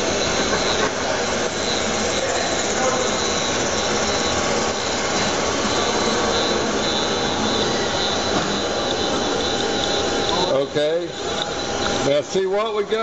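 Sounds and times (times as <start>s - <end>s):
faint high whine: 0.0s - 13.0s
lathe spindle rushing: 0.0s - 13.0s.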